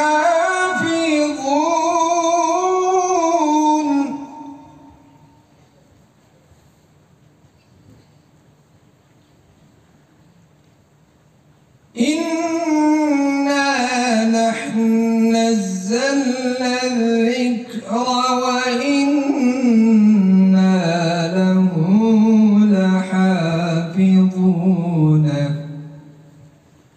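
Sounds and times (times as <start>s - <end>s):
person reciting melodically: 0.0s - 5.3s, 12.0s - 26.3s.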